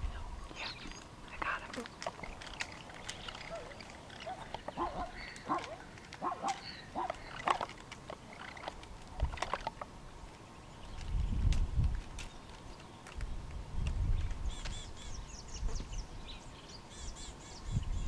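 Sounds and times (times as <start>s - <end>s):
sharp clicks: 0.8s - 10.4s
bark-like animal calls: 3.4s - 7.3s.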